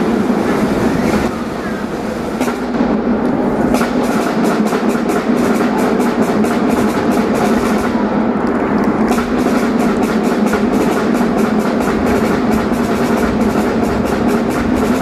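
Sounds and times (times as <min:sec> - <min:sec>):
band playing with drums: 0:02.4 - 0:08.4, 0:09.0 - 0:15.0.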